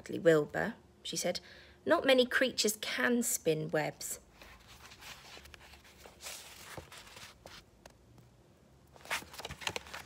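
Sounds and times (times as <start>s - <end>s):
paper rustling: 4.4s - 7.7s, 9.0s - 10.0s.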